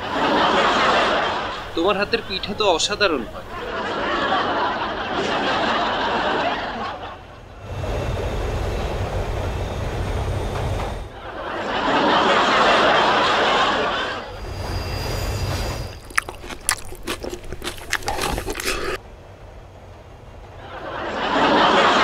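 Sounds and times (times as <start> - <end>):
train rushing through tunnel: 0.0 - 16.1, 19.0 - 22.0
crunching and clicking while eating: 15.9 - 19.0.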